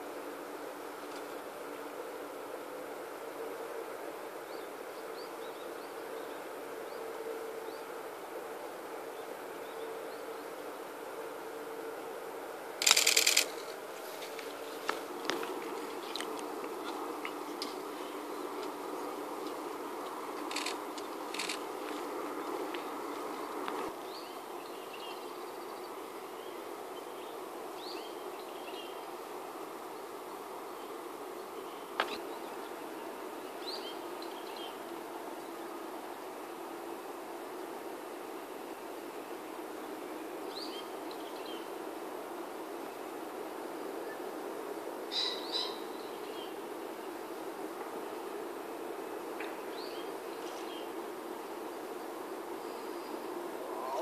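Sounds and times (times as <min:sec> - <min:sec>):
outdoor background hum: 0:00.0 - 0:54.0
faint bird chirps: 0:52.7 - 0:54.0
low hum: 0:53.5 - 0:54.0.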